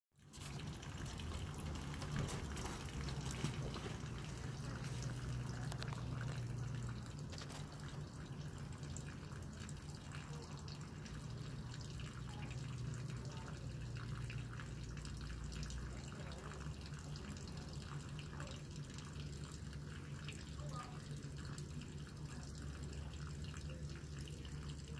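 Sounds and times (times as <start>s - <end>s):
water trickling and dripping: 0.2s - 24.9s.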